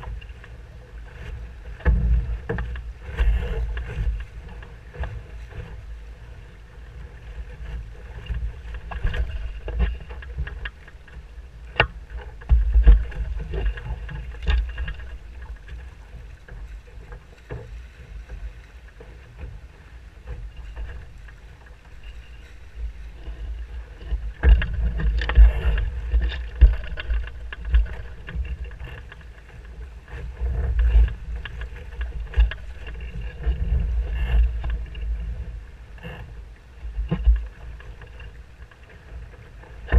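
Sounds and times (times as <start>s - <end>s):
water rushing along hull: 0.0s - 39.9s
waves slapping hull: 0.0s - 39.9s
wind rumble on microphone: 0.0s - 39.9s.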